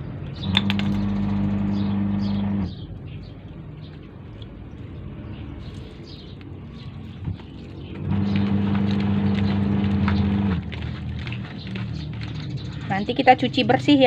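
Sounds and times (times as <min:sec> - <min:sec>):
washing machine motor humming: 0:00.5 - 0:02.8, 0:07.9 - 0:11.1.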